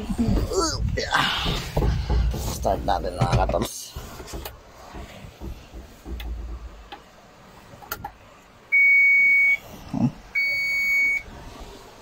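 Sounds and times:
high-pitched warning buzzer beep: 0:08.8 - 0:09.6, 0:10.4 - 0:11.2.

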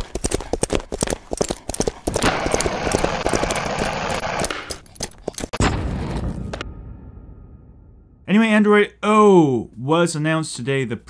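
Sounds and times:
heavy hit: 0:05.6 - 0:08.3.

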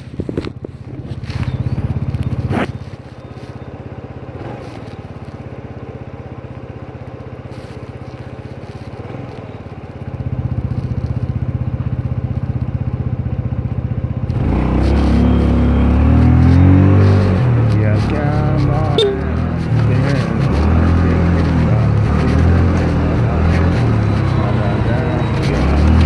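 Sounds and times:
scooter engine idling and revving: 0:00.0 - 0:26.0.

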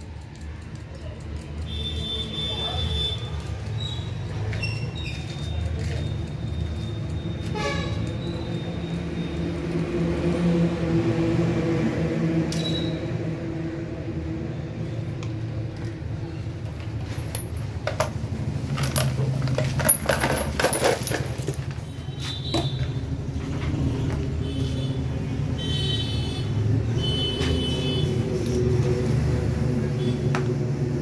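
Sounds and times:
steel tubes clinking on concrete: 0:16.6 - 0:22.7.

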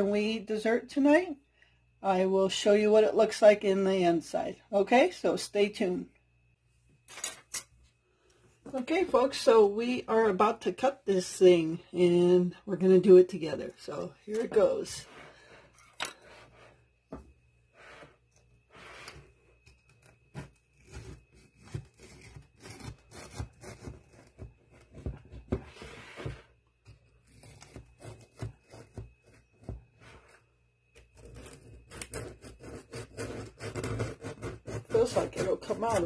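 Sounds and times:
knife cutting crunchy cake: 0:19.0 - 0:36.0.

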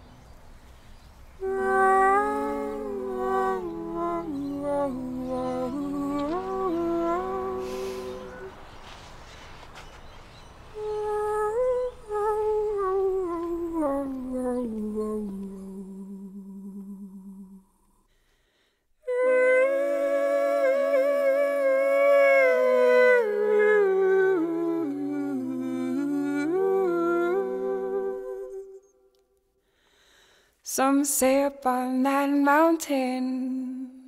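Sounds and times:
person humming a melody: 0:01.4 - 0:08.6, 0:10.8 - 0:17.7, 0:19.0 - 0:28.8.

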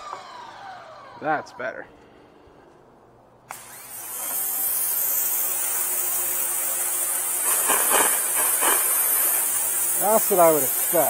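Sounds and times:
water jet hissing on concrete: 0:04.1 - 0:11.0.

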